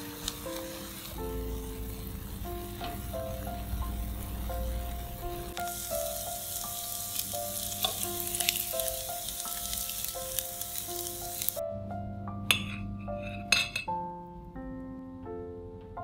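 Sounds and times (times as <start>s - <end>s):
patties sizzling in oil: 0.0s - 11.6s.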